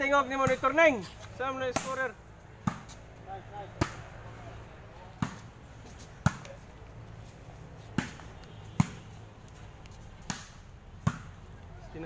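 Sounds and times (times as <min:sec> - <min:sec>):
ball struck with sharp smack: 0:02.6 - 0:02.9, 0:07.9 - 0:08.2, 0:10.2 - 0:11.3.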